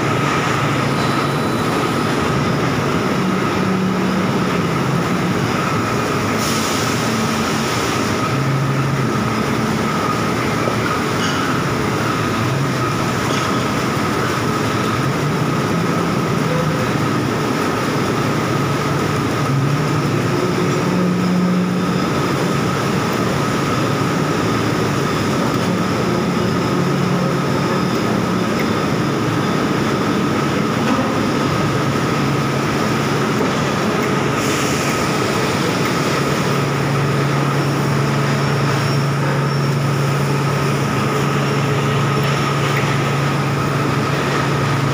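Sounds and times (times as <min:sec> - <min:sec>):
high machine whine: 0:00.0 - 0:44.9
machinery noise: 0:00.0 - 0:44.9.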